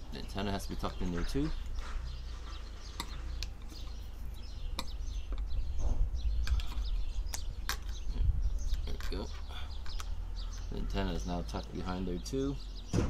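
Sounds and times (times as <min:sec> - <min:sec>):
small birds chirping: 0:00.0 - 0:13.0
steady low rumble: 0:04.3 - 0:10.9.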